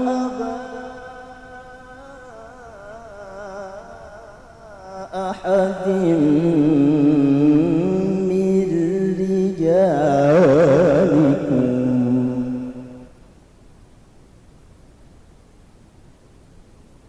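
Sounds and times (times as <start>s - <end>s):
man reciting melodically: 0.0s - 13.1s.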